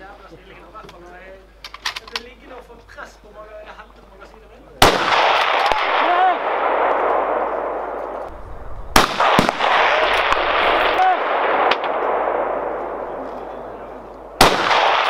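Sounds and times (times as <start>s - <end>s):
rifle shot crack: 4.8s - 15.0s
rolling echo: 4.8s - 15.0s.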